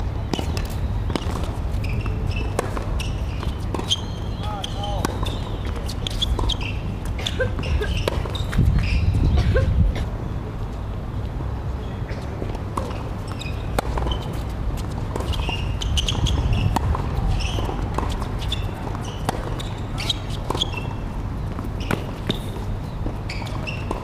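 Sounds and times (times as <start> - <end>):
racket hitting tennis ball: 0.3 - 4.1, 13.7 - 20.8
tennis ball bouncing: 0.3 - 8.9, 12.4 - 22.7, 23.5 - 24.0.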